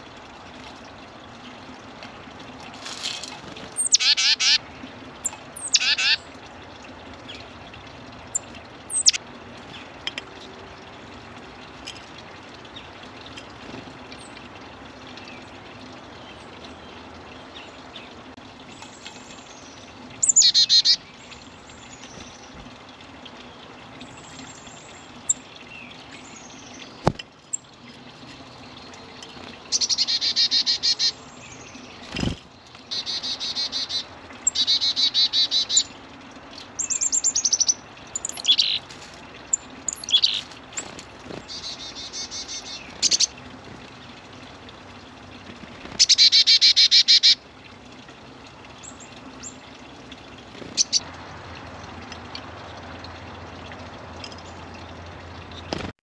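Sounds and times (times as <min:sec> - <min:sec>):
songbird trills: 0:08.3 - 0:09.2, 0:18.8 - 0:22.3, 0:36.7 - 0:38.8, 0:39.9 - 0:40.9
high bird chirps: 0:08.9 - 0:09.2.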